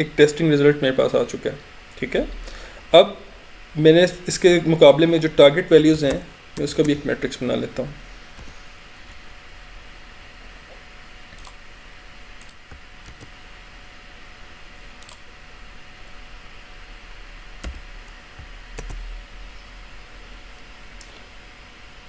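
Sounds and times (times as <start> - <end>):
steady low hum: 0.0 - 22.0
keyboard and mouse clicks: 8.4 - 8.6, 11.3 - 11.6, 12.4 - 13.3, 15.0 - 15.2, 17.6 - 19.0.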